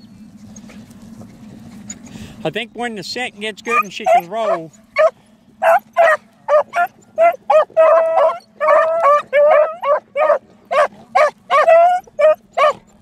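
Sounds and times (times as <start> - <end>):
beagles barking and bawling: 3.6 - 13.0.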